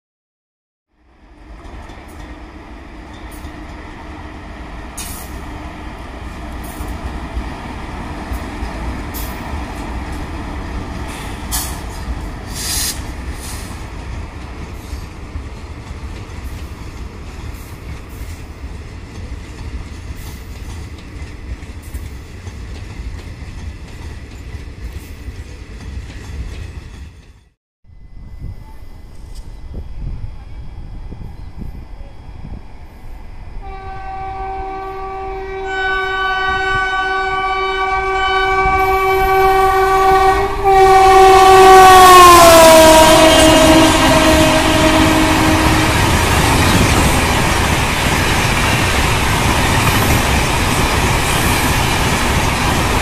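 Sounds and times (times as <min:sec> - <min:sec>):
train wheels rumbling on rail: 0:01.2 - 0:27.6, 0:28.2 - 0:53.0
wheel clacks at rail joints: 0:14.0 - 0:27.5.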